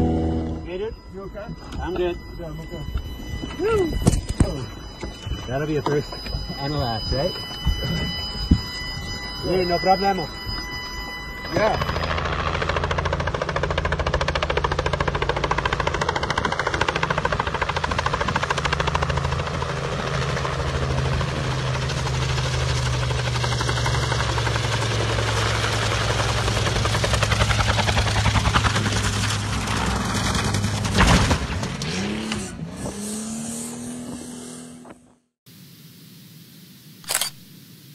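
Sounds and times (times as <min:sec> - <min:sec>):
helicopter engine whine: 0:00.0 - 0:31.0
helicopter rotor blades chopping: 0:00.0 - 0:31.0
helicopter crashing onto ground: 0:11.5 - 0:31.8.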